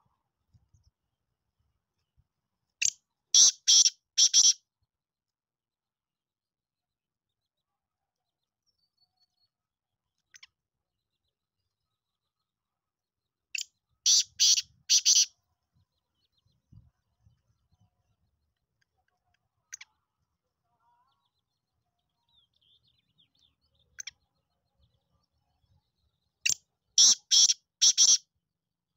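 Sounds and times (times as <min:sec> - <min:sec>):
francolin calling: 0:14.1 - 0:15.3, 0:27.0 - 0:28.2.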